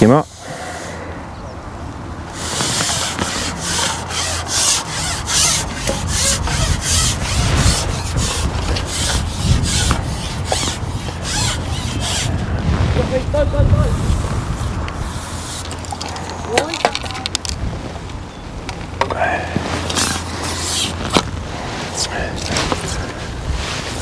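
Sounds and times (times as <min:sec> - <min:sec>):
rhythmic rasping scraping strokes: 0:02.3 - 0:12.4, 0:19.6 - 0:24.0.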